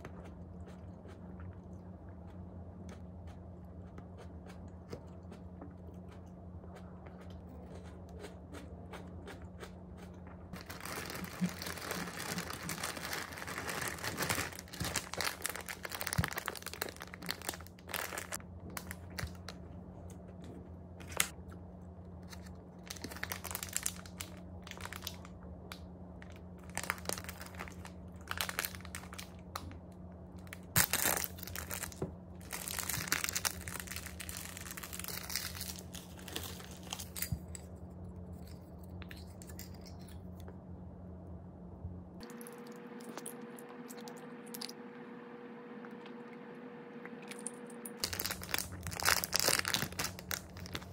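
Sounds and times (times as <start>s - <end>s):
plastic wrapper crinkling: 10.5s - 19.6s, 22.2s - 25.3s, 26.2s - 29.8s, 30.4s - 37.4s, 48.0s - 50.9s.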